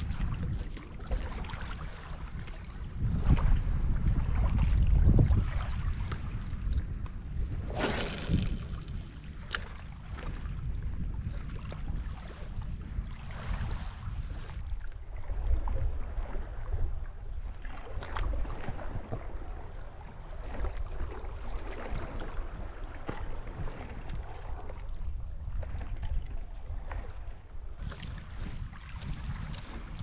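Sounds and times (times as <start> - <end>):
waves lapping against rocks: 0.0 - 14.6, 27.8 - 30.0
wind buffeting microphone: 0.0 - 30.0.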